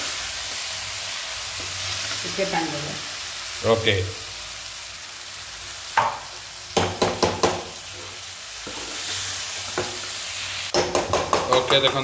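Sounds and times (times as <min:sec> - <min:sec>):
oil sizzling in a pan: 0:00.0 - 0:12.0
spoon knocking against pan: 0:06.0 - 0:06.2, 0:06.8 - 0:07.7, 0:10.7 - 0:12.0
spoon stirring in a pan: 0:06.9 - 0:12.0.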